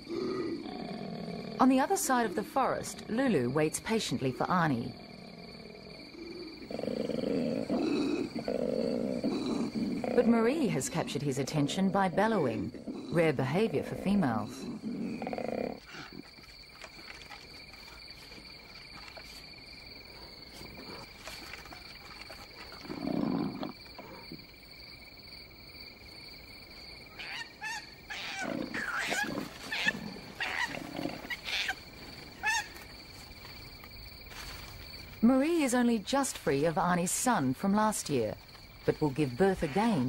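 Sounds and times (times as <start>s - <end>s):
crickets trilling: 0.0s - 40.0s
koala squawks and cries: 27.1s - 31.8s, 32.4s - 32.8s.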